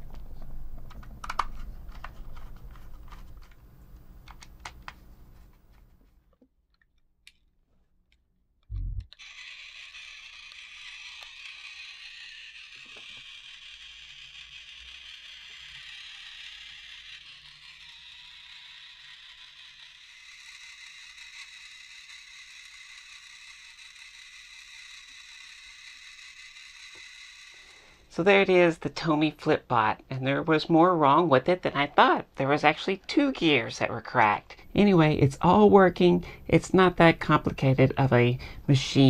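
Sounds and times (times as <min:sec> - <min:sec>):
toy motor gears whirring: 0:09.1 - 0:28.5.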